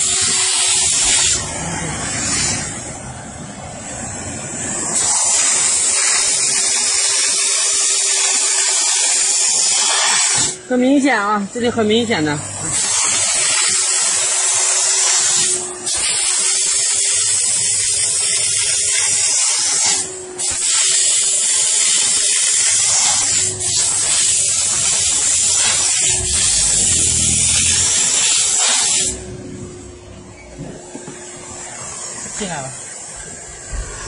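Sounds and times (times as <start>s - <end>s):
steam gun hissing: 0.0s - 3.0s, 4.1s - 11.3s, 12.3s - 29.3s
low machine hum: 24.6s - 31.6s.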